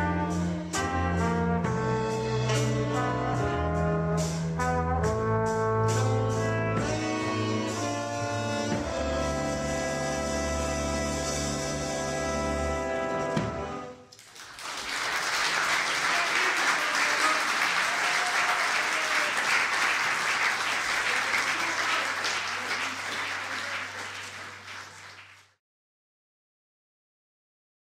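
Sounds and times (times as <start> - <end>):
horn section chord: 0.0 - 14.0
audience applauding: 14.1 - 25.6.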